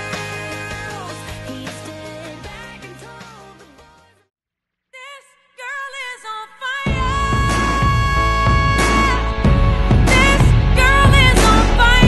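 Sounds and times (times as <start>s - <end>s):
background music: 0.0s - 4.3s, 6.8s - 12.0s.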